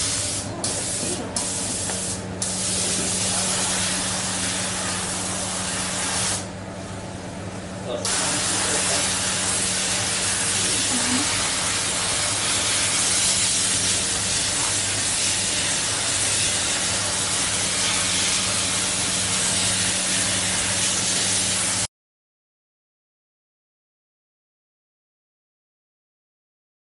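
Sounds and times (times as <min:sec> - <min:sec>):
spray gun hissing: 0:00.0 - 0:06.5, 0:08.0 - 0:21.9.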